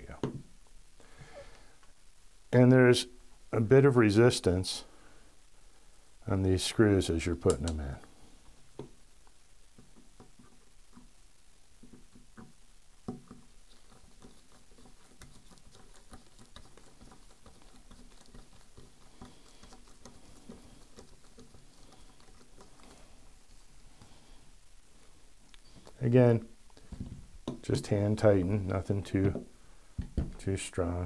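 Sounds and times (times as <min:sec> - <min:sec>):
fingers clicking and scratching metal: 0:11.9 - 0:23.1.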